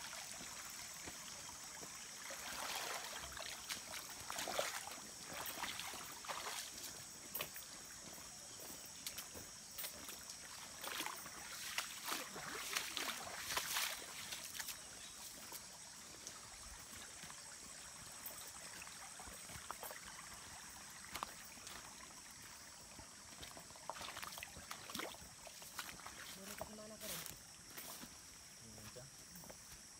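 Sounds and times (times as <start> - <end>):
trickling stream: 0.0 - 29.9
boots splashing on wet gravel: 1.8 - 7.6, 9.2 - 14.9, 23.3 - 28.0.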